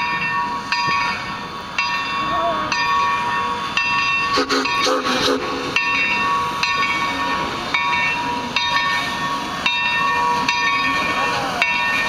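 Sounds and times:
steam locomotive bell ringing: 0:00.0 - 0:12.0
hiss of steam: 0:03.6 - 0:09.6.

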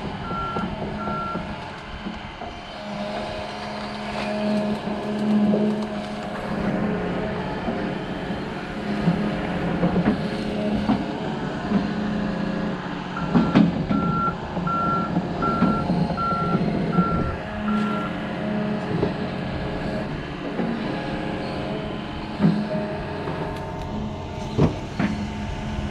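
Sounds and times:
diesel engine running: 0:00.0 - 0:25.9
clunks: 0:07.6 - 0:25.4
warning alarm beeping: 0:13.2 - 0:18.1.

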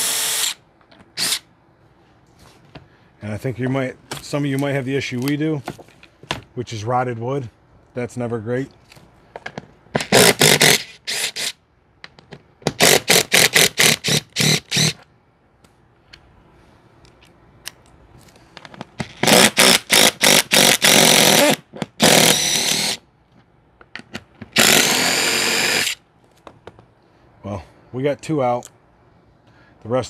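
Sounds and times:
impact driver running: 0:19.2 - 0:23.0, 0:24.6 - 0:26.0.

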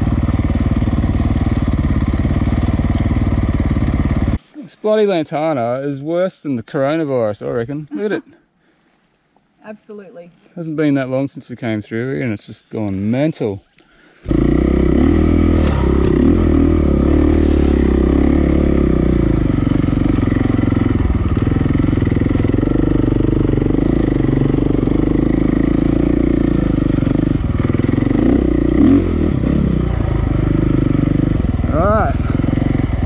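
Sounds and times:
dirt bike engine revving: 0:00.0 - 0:04.4, 0:14.2 - 0:33.0.

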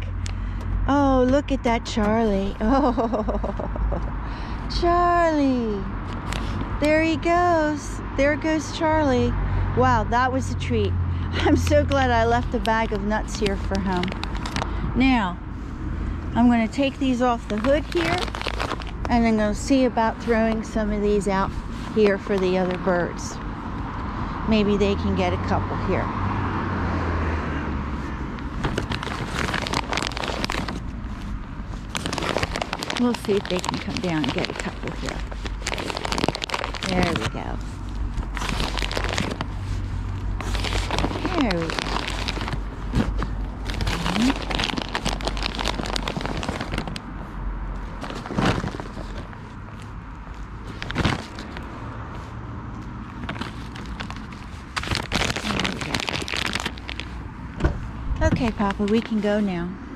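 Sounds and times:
passing car rumble: 0:00.0 - 0:59.9
foil paper bag crinkling: 0:12.0 - 0:14.8, 0:16.8 - 0:22.9, 0:28.5 - 0:47.1, 0:48.0 - 0:49.4, 0:50.3 - 0:51.6, 0:53.1 - 0:57.2
quick irregular clicks and rustles: 0:12.6 - 0:14.8.

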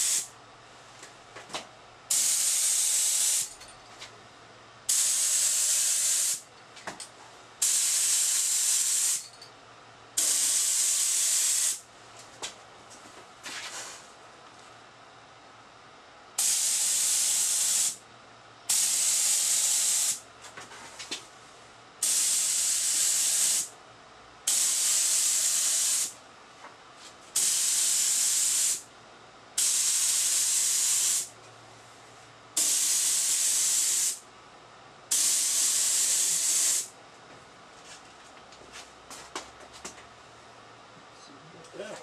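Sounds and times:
spray gun hissing air: 0:00.0 - 0:00.3, 0:02.1 - 0:03.5, 0:04.9 - 0:06.4, 0:07.6 - 0:09.2, 0:10.2 - 0:11.8, 0:16.4 - 0:18.0, 0:18.7 - 0:20.2, 0:22.0 - 0:23.7, 0:24.5 - 0:26.2, 0:27.4 - 0:28.8, 0:29.6 - 0:31.3, 0:32.6 - 0:34.2, 0:35.1 - 0:36.9.

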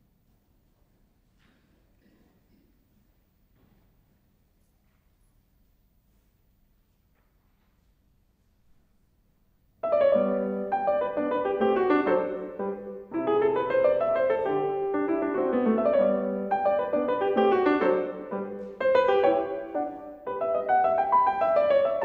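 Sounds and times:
solo grand piano piece: 0:09.8 - 0:22.0.

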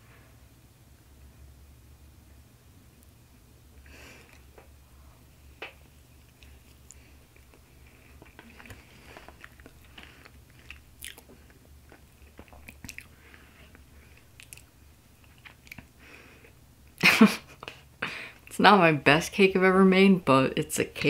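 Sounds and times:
steady low hum: 0:00.0 - 0:21.0
person chewing: 0:06.1 - 0:16.0
wet mouth smacking clicks: 0:14.4 - 0:14.7.

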